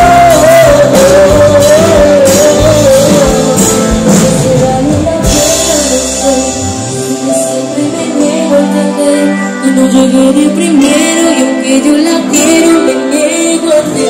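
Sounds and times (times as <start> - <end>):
man singing through pa: 0.0 - 6.4
drums: 0.0 - 14.0.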